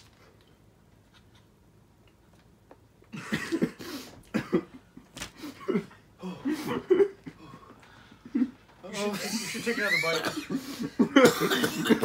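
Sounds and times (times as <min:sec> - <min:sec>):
person coughing: 0:03.2 - 0:04.8, 0:05.4 - 0:07.2, 0:09.9 - 0:12.0.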